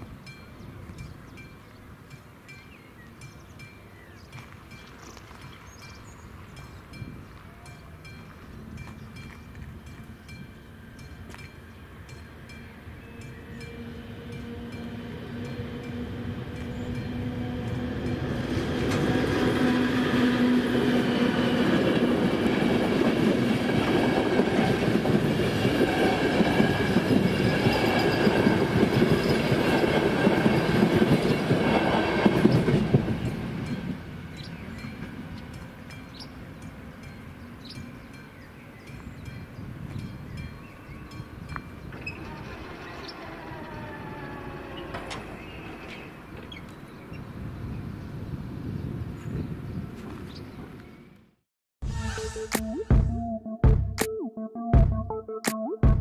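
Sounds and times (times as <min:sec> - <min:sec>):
train wheels clattering on rails: 0:14.4 - 0:37.2, 0:41.1 - 0:47.0.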